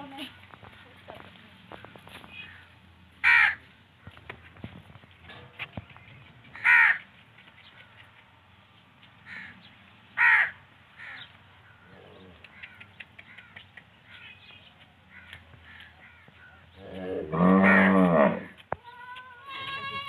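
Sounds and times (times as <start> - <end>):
crows cawing: 1.7 - 4.1, 6.5 - 7.0, 9.2 - 9.6, 10.2 - 14.2, 15.1 - 16.6, 17.6 - 18.0
cow mooing: 16.9 - 18.5.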